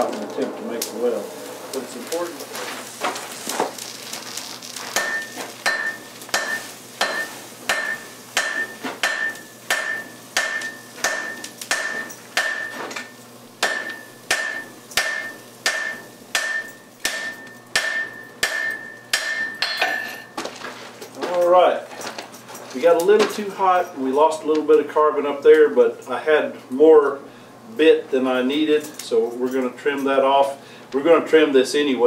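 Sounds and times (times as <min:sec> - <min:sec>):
hammer striking metal on anvil: 0:05.0 - 0:20.4.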